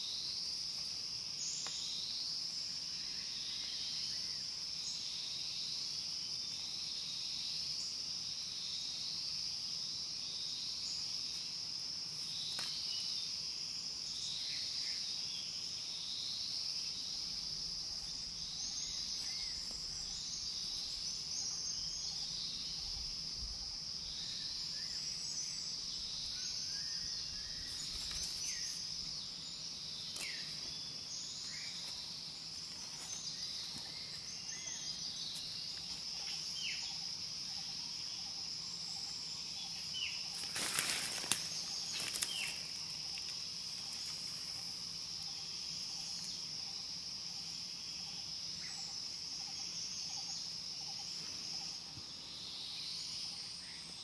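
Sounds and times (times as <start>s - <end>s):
insect chorus: 0.0s - 54.0s
short insect chirps: 0.0s - 54.0s
rustling sticks and leaves: 27.7s - 29.1s, 40.3s - 44.4s.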